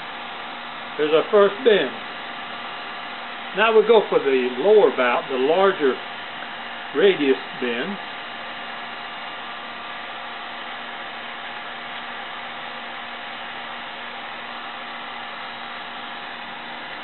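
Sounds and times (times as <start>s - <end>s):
faint motor hum: 0.0s - 17.0s.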